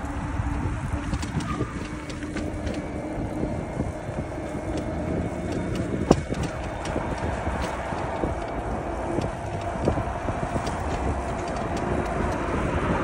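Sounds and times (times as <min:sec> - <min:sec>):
bicycle rattling: 0:00.0 - 0:13.0
wind rumbling on microphone: 0:00.0 - 0:13.0
small clicks: 0:04.4 - 0:12.8.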